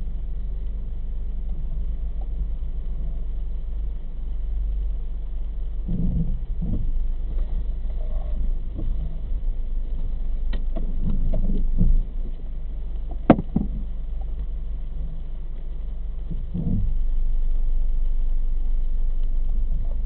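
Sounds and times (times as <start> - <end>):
car engine idling: 0.0 - 20.0
light knocks and clicks: 13.0 - 14.5.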